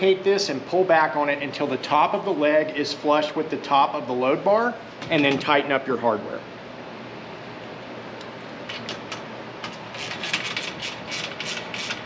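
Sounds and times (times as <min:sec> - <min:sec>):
hand ratchet clicking: 0:10.0 - 0:12.0.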